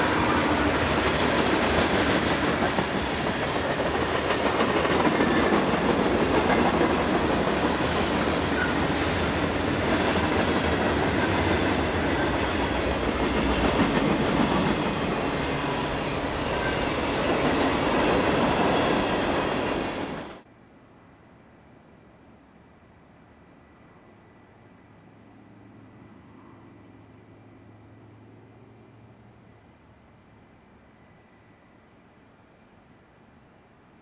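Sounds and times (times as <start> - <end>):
freight train rolling past: 0.0 - 20.5.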